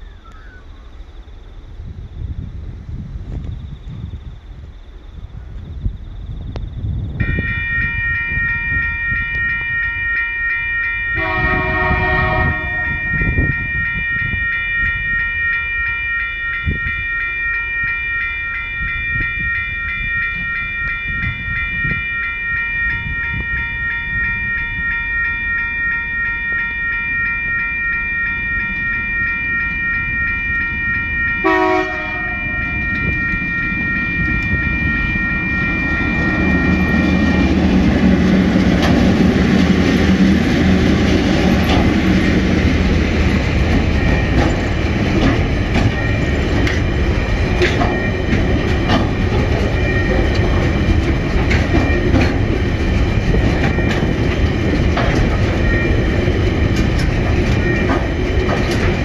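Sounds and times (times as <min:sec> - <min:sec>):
level crossing warning bell: 0:07.1 - 0:59.0
locomotive horn: 0:07.2 - 0:15.6, 0:26.5 - 0:39.8.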